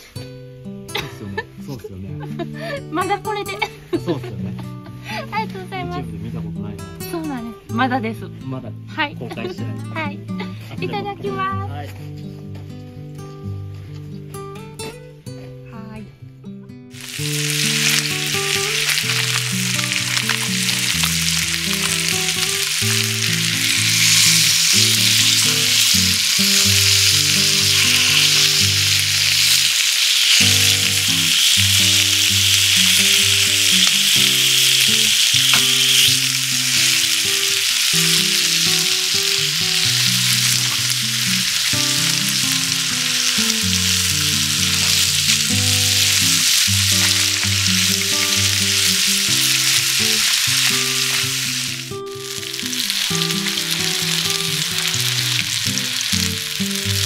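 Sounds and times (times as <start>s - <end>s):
soft background music: 0.2s - 56.5s
chicken frying in oil: 17.0s - 57.0s.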